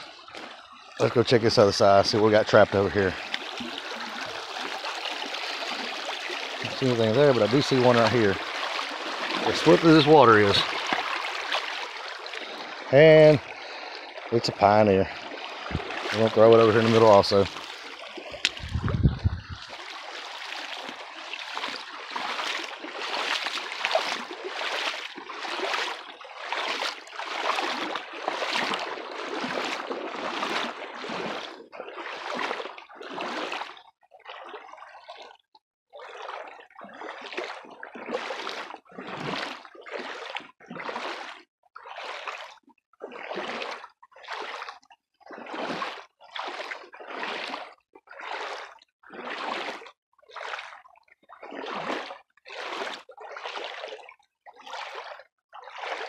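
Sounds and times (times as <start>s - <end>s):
wading splashes in creek: 0.0s - 56.0s.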